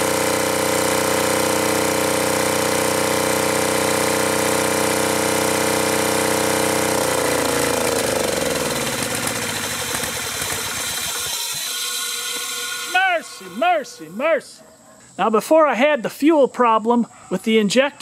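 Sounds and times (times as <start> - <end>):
diesel engine running rough: 0.0 - 14.3.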